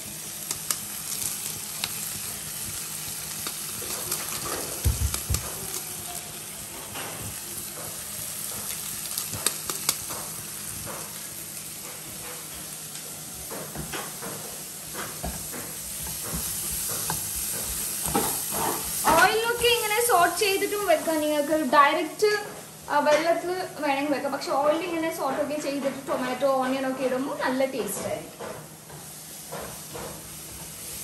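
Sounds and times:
vegetables sizzling in oil: 0.0s - 27.9s, 28.7s - 31.0s
wooden spatula scraping a pan: 16.1s - 19.6s.

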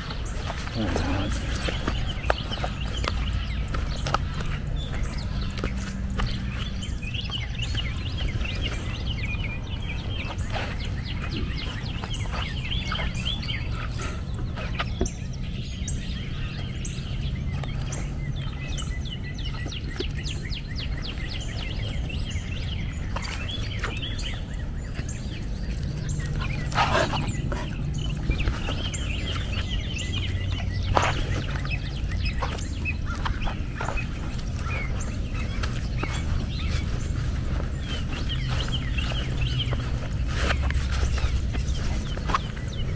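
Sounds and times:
birds chirping: 0.0s - 42.9s
steady low rumble: 0.0s - 42.9s.

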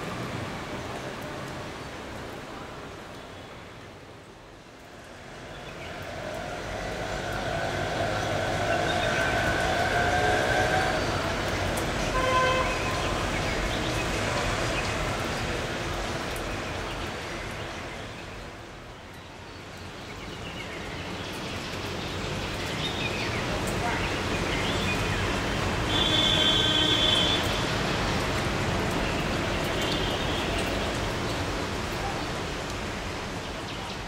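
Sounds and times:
heavy rain: 0.0s - 34.0s
wet traffic noise: 0.0s - 34.0s.

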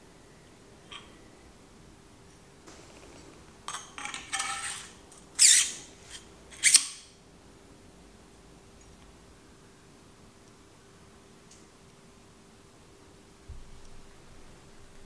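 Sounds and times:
short scraping squeaks: 4.3s - 7.0s.

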